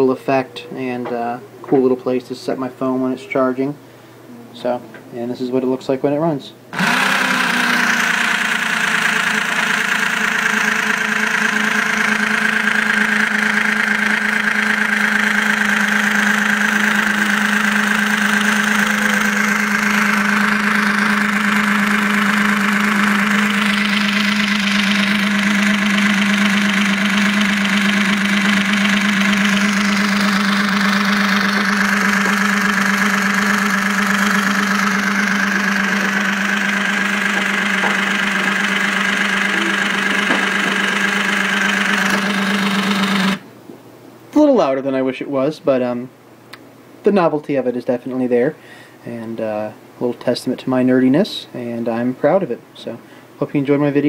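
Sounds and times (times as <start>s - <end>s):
small electric motor whirring: 6.7s - 43.4s.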